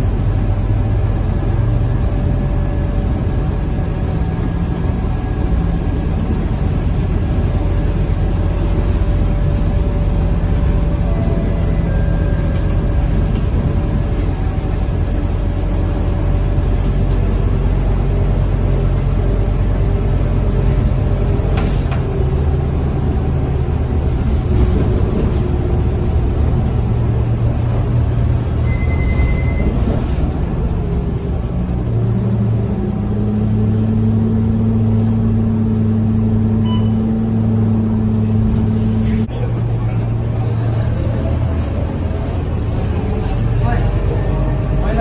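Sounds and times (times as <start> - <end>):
bus diesel engine running: 0.0 - 45.0
road and tyre noise: 0.0 - 45.0
short beep: 28.6 - 29.9, 36.6 - 37.2.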